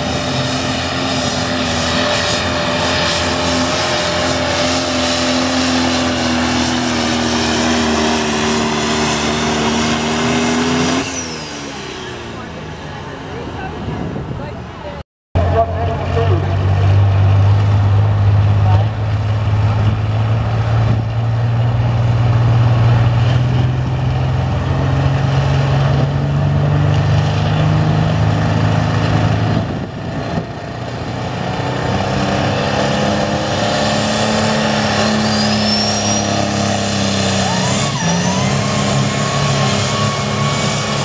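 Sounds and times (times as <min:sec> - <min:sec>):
diesel tractor engine running hard: 0:00.0 - 0:41.0
thin high whistle: 0:35.0 - 0:36.6.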